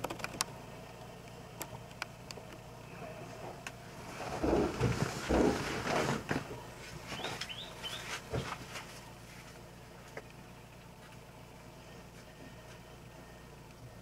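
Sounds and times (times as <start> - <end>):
knocks and shuffling: 1.3 - 13.3
bird chirping: 7.1 - 8.6.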